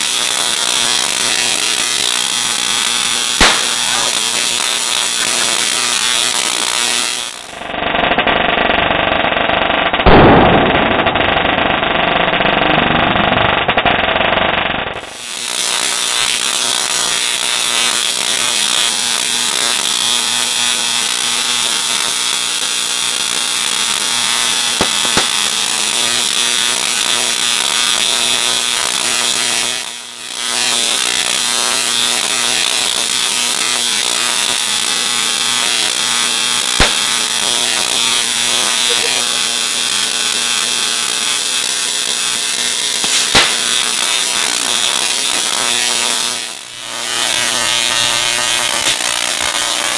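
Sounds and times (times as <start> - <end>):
sharp electric crack: 0.0 - 7.8, 10.0 - 11.8, 15.0 - 49.9
tesla coil crackling buzz: 0.0 - 8.5, 9.4 - 49.9.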